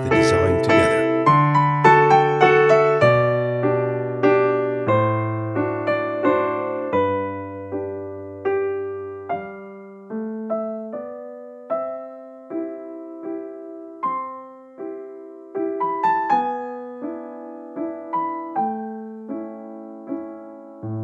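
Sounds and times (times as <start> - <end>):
held piano bass notes: 0.0 - 1.2.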